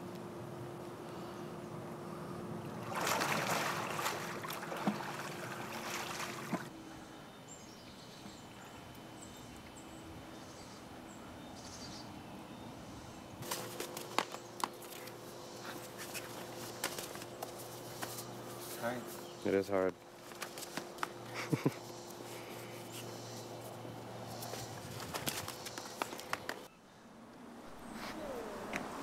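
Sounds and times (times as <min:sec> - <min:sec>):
pool water splashing: 0:02.6 - 0:06.8.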